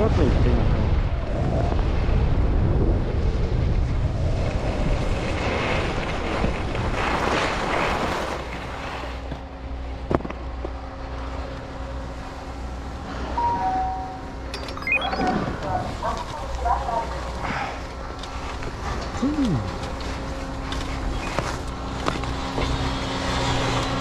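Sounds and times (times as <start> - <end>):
wind buffeting microphone: 0.0 - 8.7
steady hum: 8.4 - 24.0.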